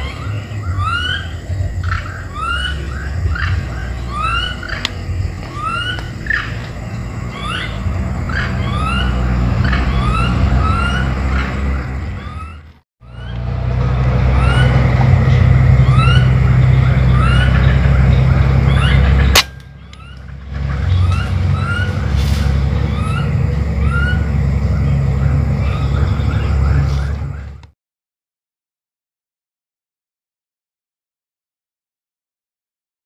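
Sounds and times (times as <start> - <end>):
low rumble: 0.0 - 27.7
rifle shot: 19.3 - 19.6.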